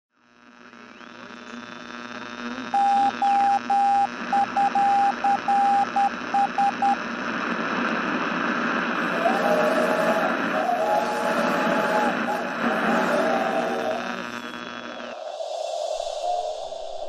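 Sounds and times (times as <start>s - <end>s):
radio static: 0.3s - 16.7s
radio tuning whistle: 0.7s - 7.0s, 9.0s - 17.0s
morse code beeps: 2.8s - 7.0s.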